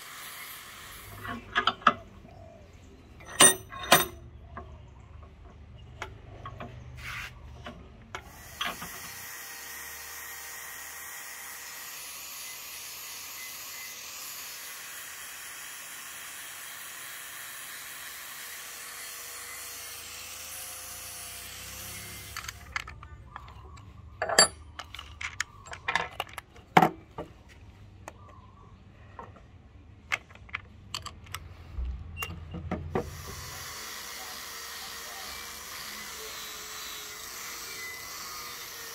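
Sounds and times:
angle grinder grinding steel: 0.0s - 2.1s, 8.2s - 24.6s, 33.0s - 38.9s
sharp clicks and knocks: 3.2s - 8.9s.

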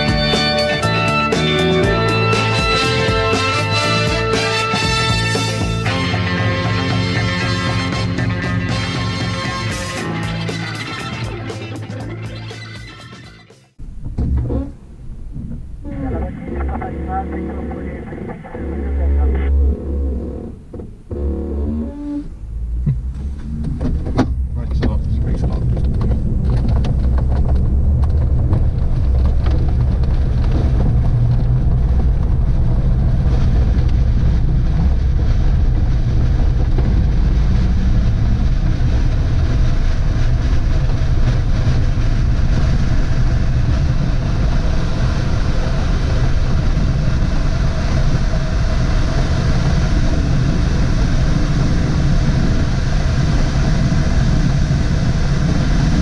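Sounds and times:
wheel rumbling over ground: 13.3s - 56.0s
air rushing over canopy: 22.4s - 56.0s.

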